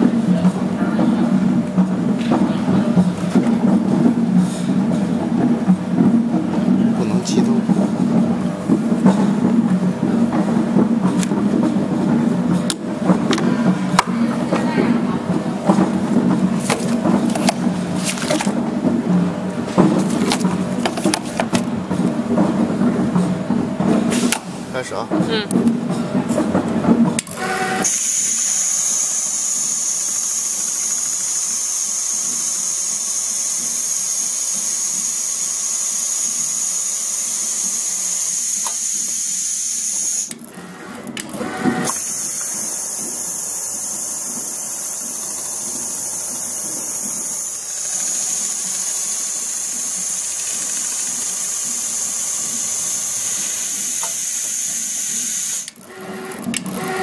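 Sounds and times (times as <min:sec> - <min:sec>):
sewing machine whirring: 0:26.3 - 0:57.0.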